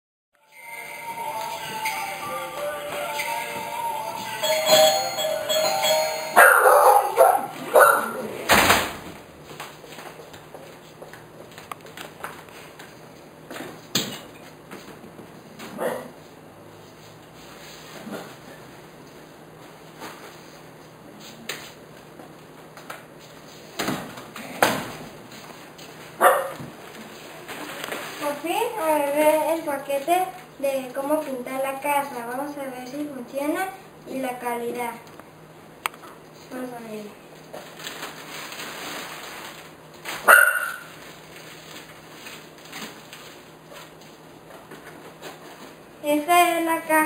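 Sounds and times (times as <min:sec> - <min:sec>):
dog barking: 0:06.4 - 0:08.3, 0:15.8 - 0:16.2, 0:26.2 - 0:26.6, 0:40.2 - 0:40.9
plastic bag crinkling: 0:37.6 - 0:43.9.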